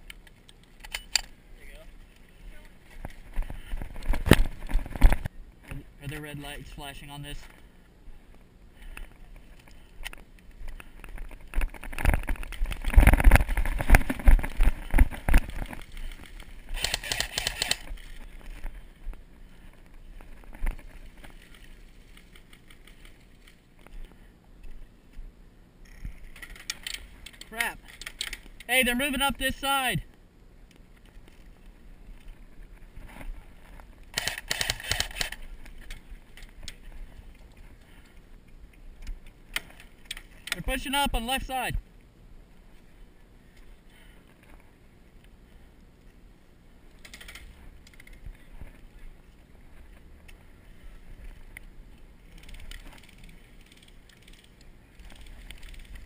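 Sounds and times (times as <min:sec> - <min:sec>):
airsoft gun firing: 0:16.7 - 0:17.9, 0:34.1 - 0:35.4.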